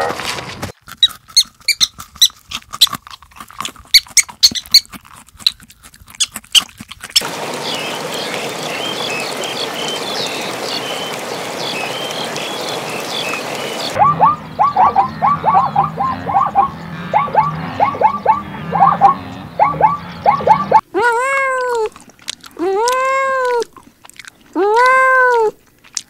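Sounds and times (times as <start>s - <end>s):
rabbits chewing greens: 0.0s - 7.6s, 21.5s - 26.0s
small birds chirping: 4.0s - 4.9s, 7.2s - 20.8s.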